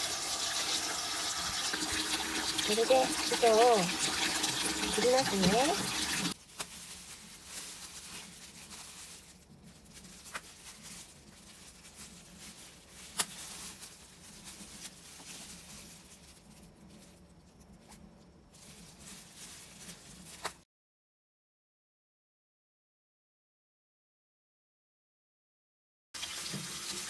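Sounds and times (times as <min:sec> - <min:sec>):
wet handling sounds: 0:01.7 - 0:20.6.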